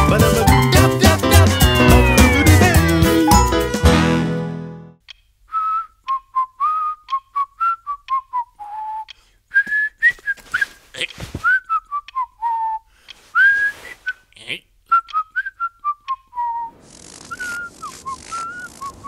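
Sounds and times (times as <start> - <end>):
theme music: 0.0 - 5.0
person whistling a tune: 1.4 - 3.6, 5.5 - 10.8, 11.4 - 14.3, 14.9 - 16.7.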